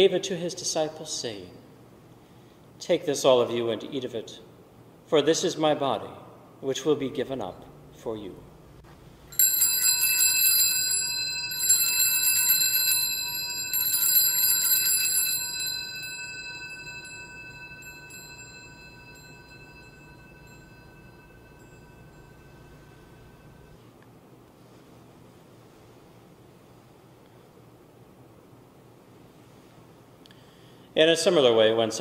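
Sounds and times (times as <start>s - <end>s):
altar bells ringing: 9.3s - 23.9s.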